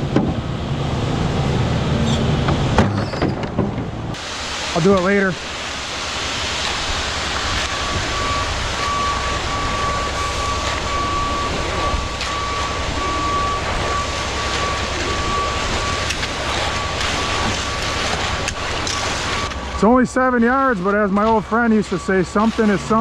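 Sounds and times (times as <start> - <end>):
diesel engine running: 0.0 - 23.0
truck backup alarm beeping: 6.4 - 23.0.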